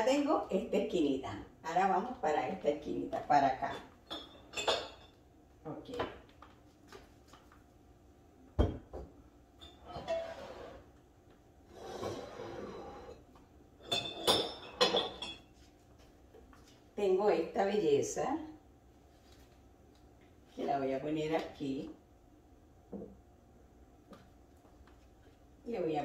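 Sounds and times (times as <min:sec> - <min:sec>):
ceramic mugs clinking on countertop: 0:03.6 - 0:05.2, 0:13.8 - 0:15.5.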